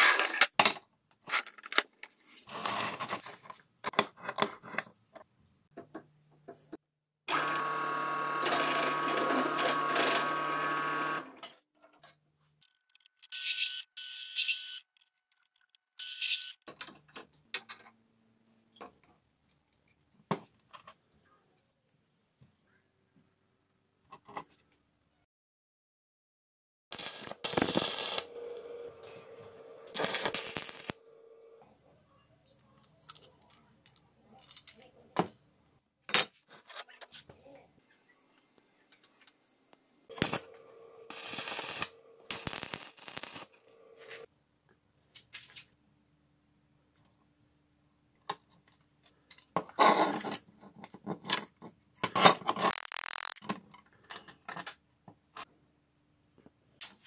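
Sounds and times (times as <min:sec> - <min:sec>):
drill press cutting steel: 0:07.3 - 0:11.4, 0:27.0 - 0:31.4
welder hum: 0:07.3 - 0:11.4, 0:26.9 - 0:31.6, 0:37.8 - 0:44.3, 0:52.7 - 0:53.4
arc welding crackling hiss: 0:26.9 - 0:31.0, 0:41.1 - 0:44.3, 0:52.7 - 0:53.4.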